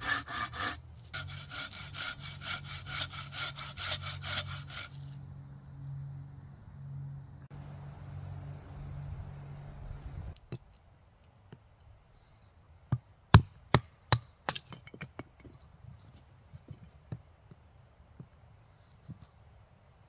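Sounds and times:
steady rasping noise: 0.0 - 5.4.

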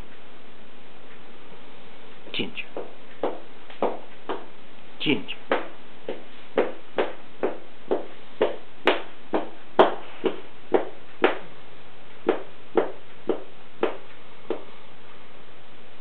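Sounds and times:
dog tail thumping: 2.8 - 4.6, 5.5 - 11.5, 12.2 - 14.7.

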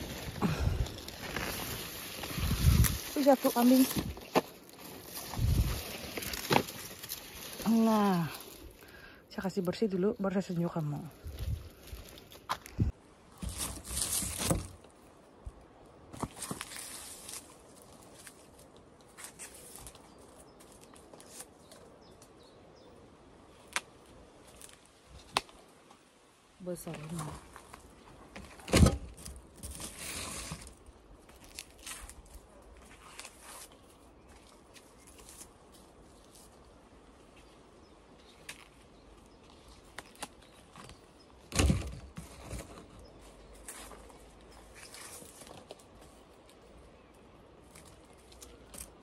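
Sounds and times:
leaves thumping microphone: 0.0 - 8.8, 10.7 - 14.9, 26.8 - 30.8, 40.0 - 43.0
leek leaves rustling and snapping: 0.0 - 8.9, 26.8 - 36.6, 39.4 - 41.8, 47.6 - 49.0.

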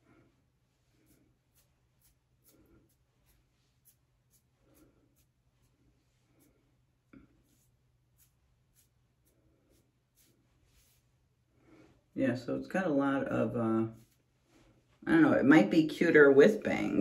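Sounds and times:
fingers rustling through hair: 0.0 - 12.0, 13.5 - 15.0.

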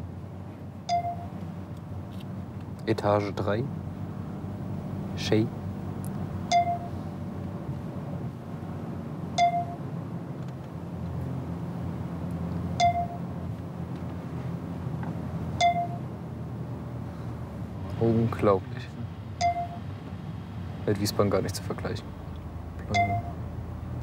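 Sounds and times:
computer alert pings: 0.9 - 1.3, 6.5 - 7.0, 9.4 - 9.8, 12.8 - 13.3, 15.6 - 16.1, 19.4 - 19.9, 22.9 - 23.4
car cabin hum: 22.8 - 23.8.

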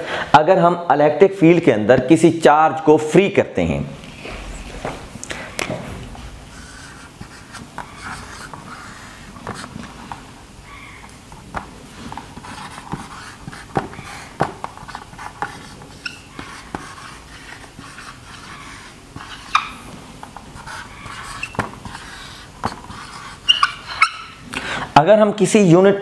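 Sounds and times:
marker squeaking on whiteboard: 4.0 - 24.5.

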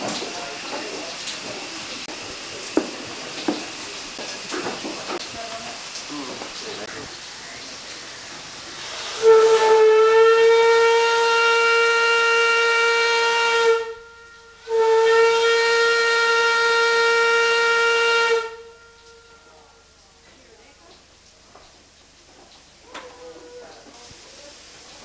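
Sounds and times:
steam hiss: 0.0 - 13.8, 23.7 - 25.0
steam whistle blasts: 8.0 - 20.0.

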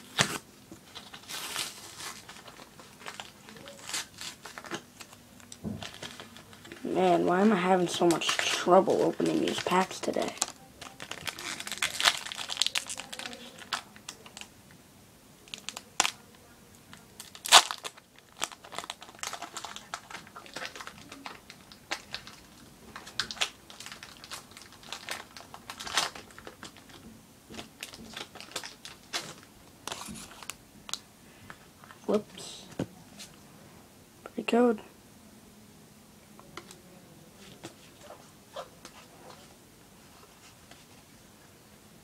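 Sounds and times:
foil wrapper crinkling and tearing: 0.0 - 6.9, 7.5 - 14.5, 15.4 - 16.2, 16.9 - 31.0.

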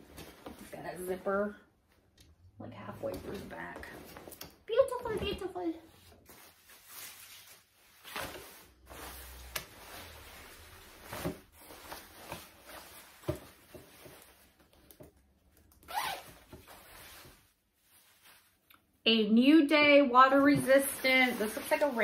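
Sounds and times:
clothing fabric rustling: 0.0 - 1.6, 2.8 - 14.9, 15.8 - 18.7, 20.4 - 22.0
plastic bag crinkling: 20.7 - 22.0.

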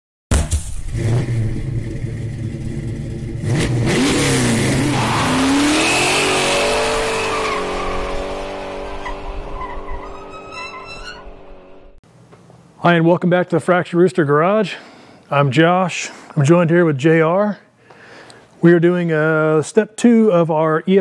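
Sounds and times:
car engine revving: 0.7 - 10.6.

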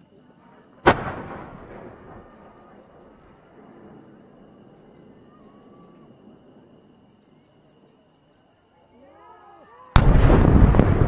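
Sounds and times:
firework launch boom: 0.8 - 2.4, 10.0 - 11.0.

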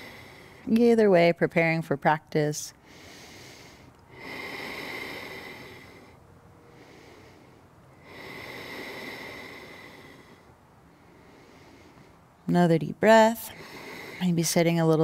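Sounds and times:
woman breathing deeply: 0.0 - 0.7, 2.8 - 12.4, 13.5 - 14.4.

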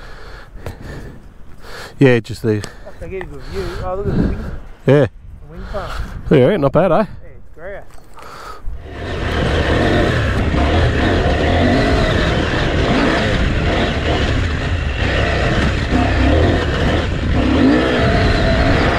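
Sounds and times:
motorbike engines running: 8.8 - 18.9.

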